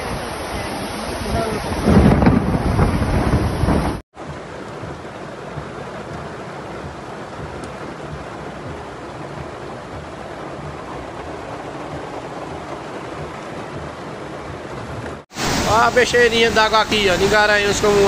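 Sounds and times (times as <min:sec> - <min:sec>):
floodwater rushing: 0:00.0 - 0:18.0
heavy rain: 0:00.0 - 0:18.0.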